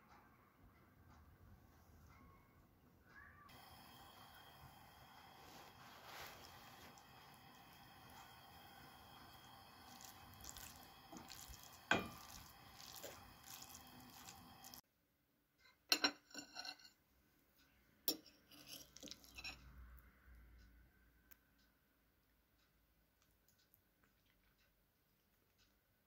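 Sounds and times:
wooden spoon stirring in metal bowl: 3.5 - 14.8, 18.1 - 19.6
fork scraping a plate: 9.9 - 14.8, 16.1 - 17.0, 18.1 - 19.6.

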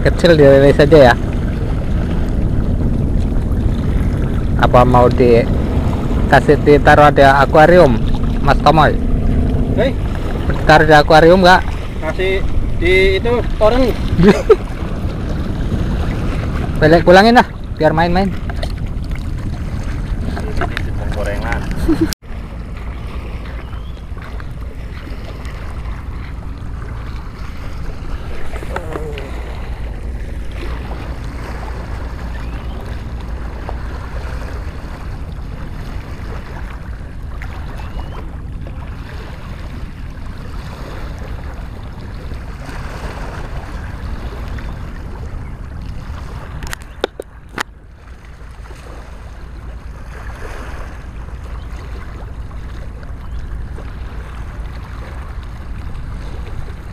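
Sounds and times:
water lapping against rocks: 0.0 - 56.9
wind rumble on microphone: 0.0 - 56.9.

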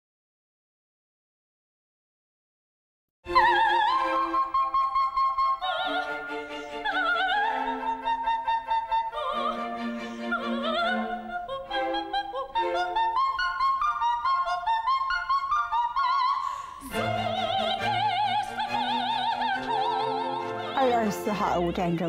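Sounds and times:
operatic voice with vibrato: 16.8 - 22.0.

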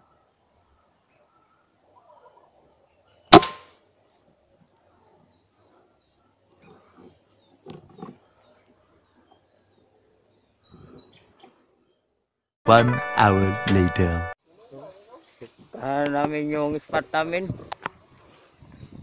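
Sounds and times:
small birds chirping: 0.0 - 12.5, 14.4 - 17.0
rifle shot: 3.3 - 3.7.

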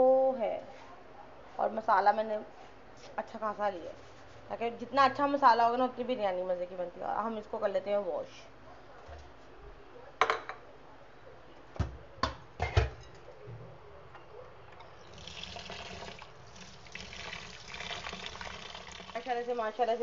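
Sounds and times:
tap water running: 15.0 - 20.0.

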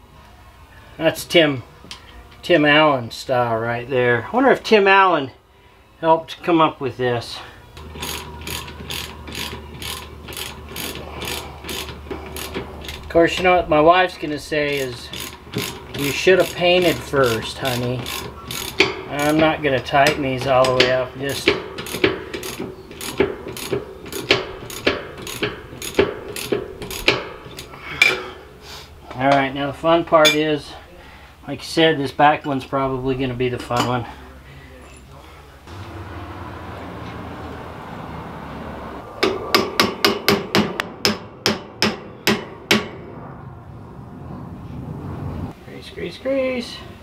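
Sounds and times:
ratchet wrench clicking: 7.8 - 13.4, 14.6 - 19.4, 20.0 - 27.8.

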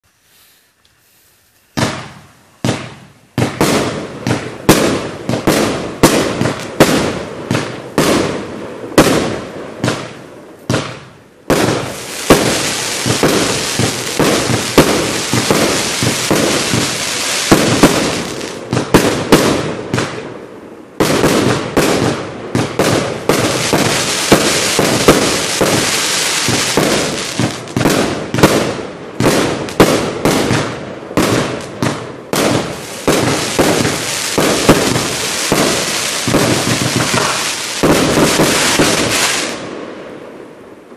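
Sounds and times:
firework barrage bangs and pops: 1.8 - 20.4, 21.0 - 40.1.

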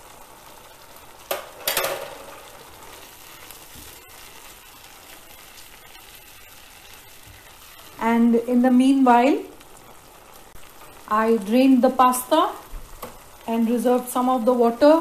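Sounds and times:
tomatoes sizzling in oil: 0.0 - 15.0.

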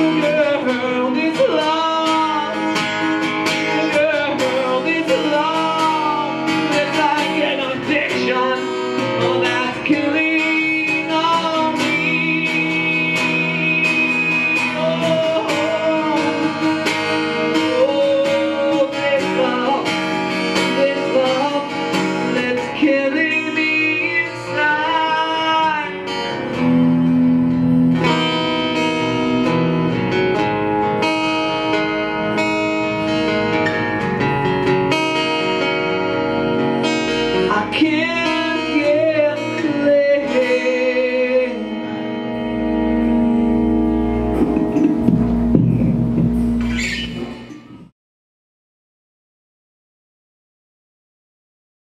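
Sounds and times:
man singing: 0.0 - 26.6, 37.0 - 42.3
strummed acoustic guitar: 0.0 - 47.9.

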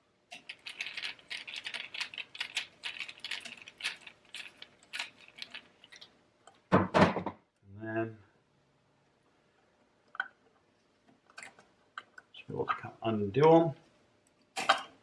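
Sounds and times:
loud knock: 6.7 - 7.4.

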